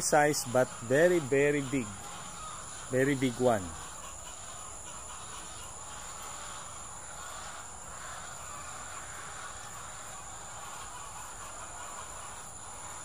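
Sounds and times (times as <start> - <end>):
insects trilling: 0.0 - 13.0
outdoor background hum: 0.0 - 13.0.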